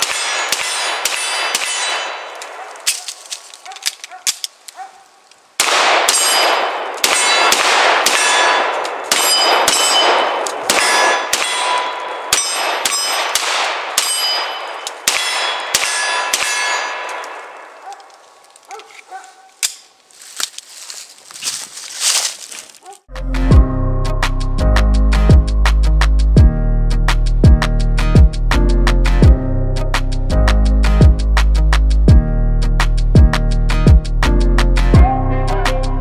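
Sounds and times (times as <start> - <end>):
pistol shots: 0.0 - 3.1, 5.6 - 17.7
metallic ringing: 9.1 - 13.4, 14.0 - 17.2.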